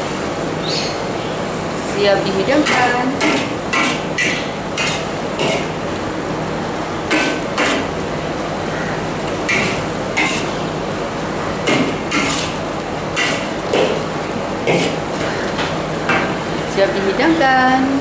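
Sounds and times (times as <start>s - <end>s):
metal spatula scraping a wok: 9.5s - 10.6s, 12.1s - 12.6s.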